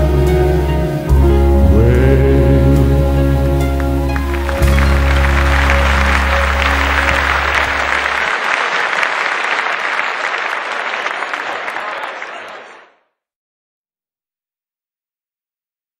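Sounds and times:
held chord of background music: 0.0 - 8.4
audience applauding: 3.6 - 13.0.

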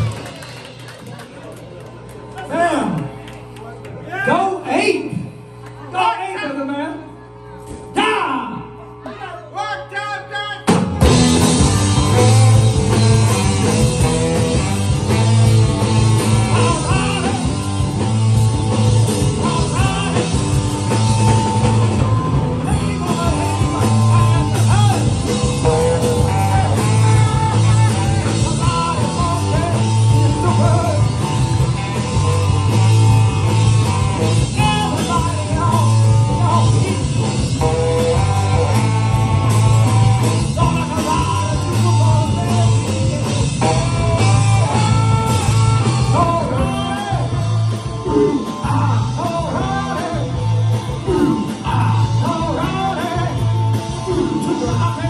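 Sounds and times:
drum kit: 0.0 - 2.4, 10.7 - 55.0
electric guitars: 0.0 - 4.1, 10.7 - 55.0
bass guitar: 0.0 - 5.9, 10.6 - 55.0
lead singer: 15.2 - 32.8, 34.2 - 55.0.

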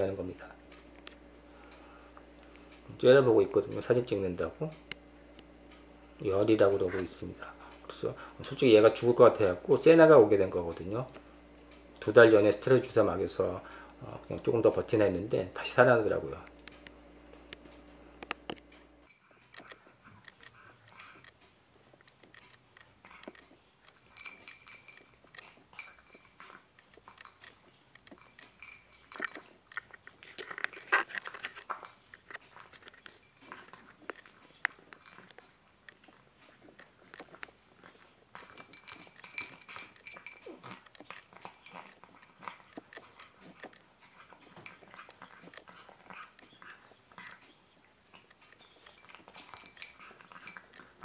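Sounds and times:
cat crunching dry food: 16.2 - 51.0.

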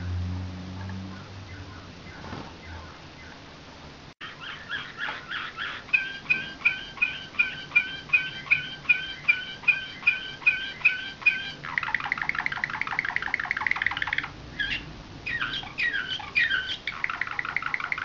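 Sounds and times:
canary singing whistled notes: 4.2 - 18.0.

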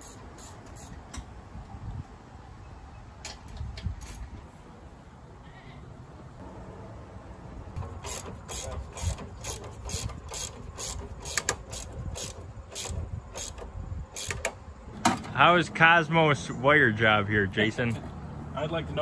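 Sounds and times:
socket ratchet clicking: 7.8 - 14.6.

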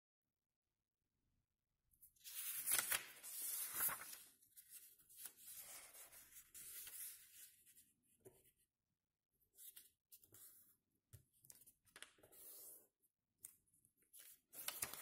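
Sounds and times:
paper rustling and crinkling: 2.2 - 7.5, 14.2 - 15.0.

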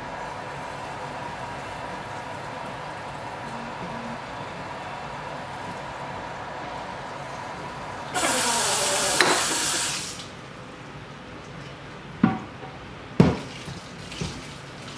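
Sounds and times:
knocks on glass: 13.2 - 13.5.

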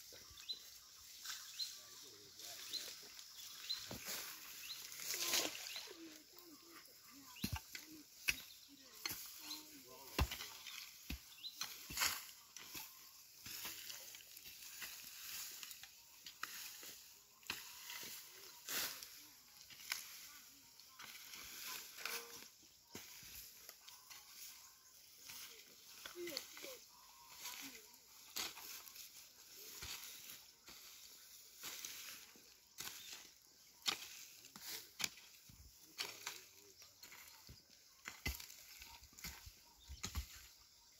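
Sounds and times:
dry grass rustling and crackling: 0.0 - 40.9
soil clods thumping: 7.3 - 12.7, 33.8 - 40.5
hoe chopping into dry soil: 10.1 - 12.3.

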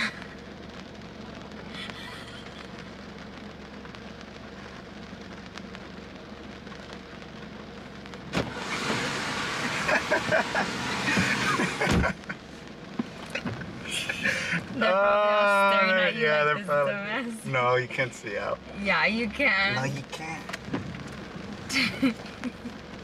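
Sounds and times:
car engine idling: 0.0 - 23.0
rain pattering on car: 0.0 - 23.0
car door shutting with thump: 8.3 - 9.1, 10.2 - 12.2, 20.5 - 21.0
car door opening: 8.3 - 12.2.

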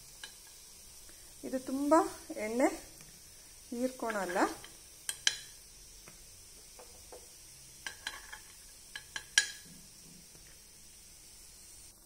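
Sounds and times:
oil sizzling: 0.0 - 12.0
spoon clinking on metal pan: 4.1 - 5.6, 7.8 - 9.7.

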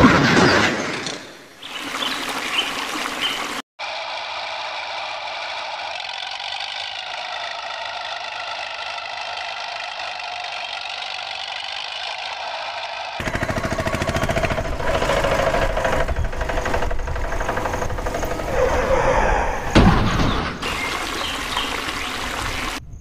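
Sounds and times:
water splashing: 1.6 - 3.6, 20.2 - 22.8
toy motor whine: 4.4 - 13.2.

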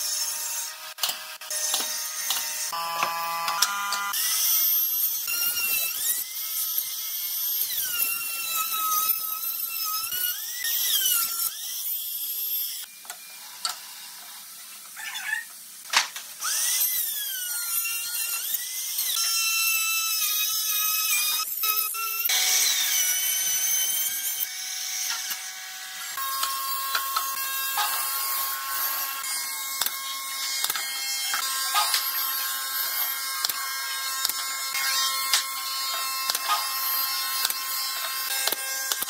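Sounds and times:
trim router whining: 0.9 - 6.3.

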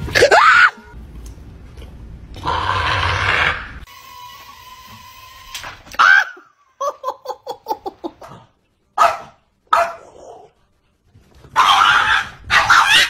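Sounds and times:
husky yipping: 11.5 - 13.0.

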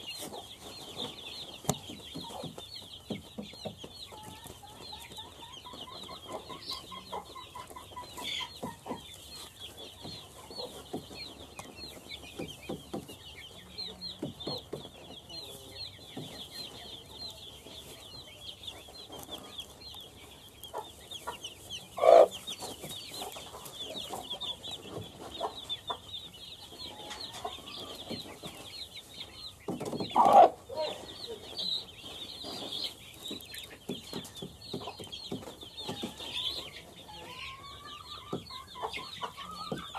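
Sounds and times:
chicks peeping: 0.0 - 39.9
hen calling: 22.0 - 22.3.

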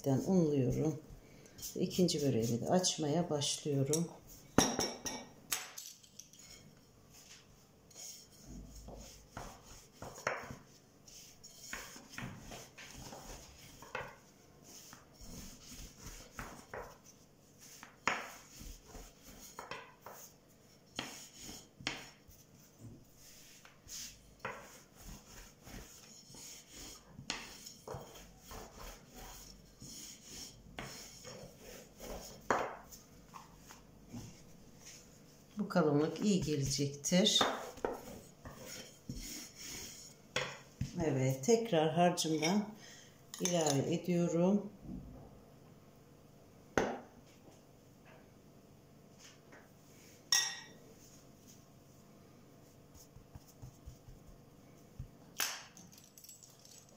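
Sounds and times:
rolling pin on dough: 0.0 - 4.8, 6.4 - 41.4, 52.6 - 55.2.

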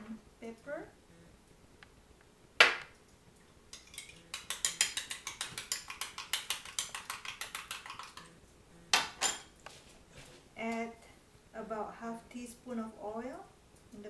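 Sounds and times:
fork clicking on ceramic bowl: 3.8 - 8.3.

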